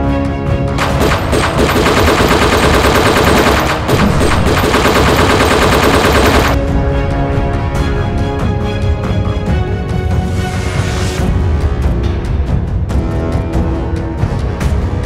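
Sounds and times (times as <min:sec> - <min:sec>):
dramatic music: 0:00.0 - 0:15.0
machine-gun fire: 0:00.8 - 0:06.6.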